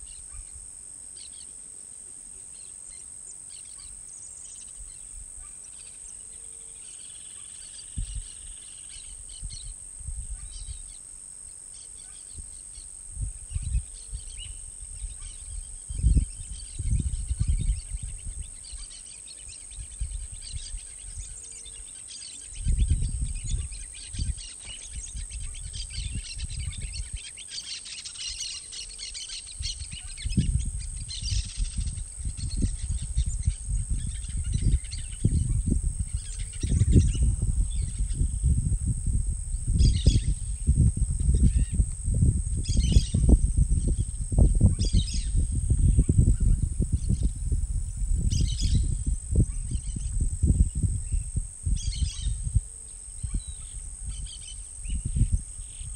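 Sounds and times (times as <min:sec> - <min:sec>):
wild birds chirping: 0:00.0 - 0:38.6, 0:42.5 - 0:55.9
low gusting rumble: 0:13.0 - 0:18.5, 0:29.7 - 0:55.9.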